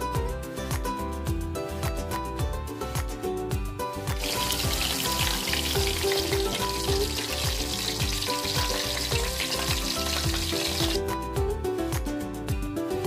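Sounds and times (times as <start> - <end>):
background music with beat: 0.0 - 13.0
chicken sizzling in oil: 4.1 - 11.1.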